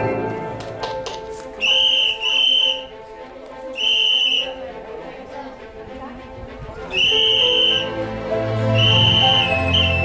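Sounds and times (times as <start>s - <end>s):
whistle-like melody over accompaniment: 1.6s - 3.0s, 3.7s - 4.7s, 6.8s - 10.0s.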